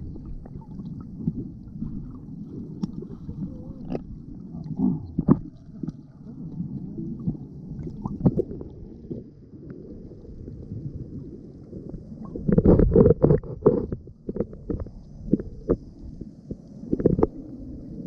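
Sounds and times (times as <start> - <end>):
underwater rumbling: 0.0 - 18.0
water gurgling and bubbling: 0.0 - 18.0
underwater knocks: 5.1 - 6.0, 16.9 - 17.4.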